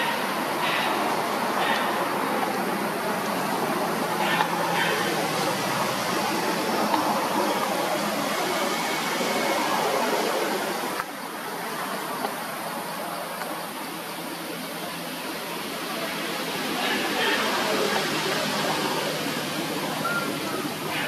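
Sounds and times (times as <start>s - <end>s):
steady rushing noise: 0.0s - 21.0s.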